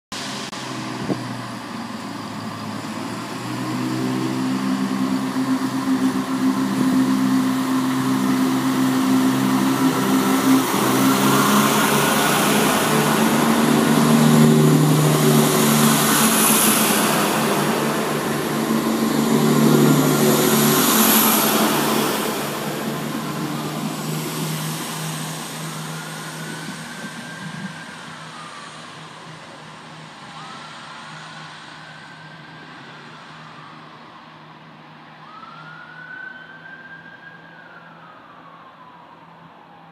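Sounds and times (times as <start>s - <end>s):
wheels hissing on rails: 0.2s - 30.1s
diesel train engines: 0.2s - 35.2s.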